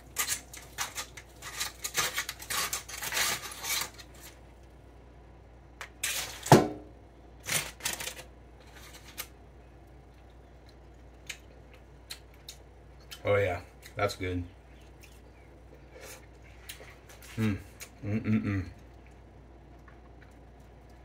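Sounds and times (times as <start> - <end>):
crackling foil: 0.0 - 4.5, 5.9 - 6.6, 7.4 - 9.4.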